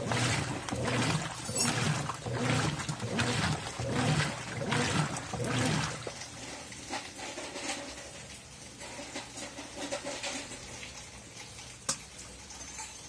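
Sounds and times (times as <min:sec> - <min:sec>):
washing machine motor humming: 0:00.0 - 0:07.2
water sloshing back and forth: 0:00.0 - 0:11.8.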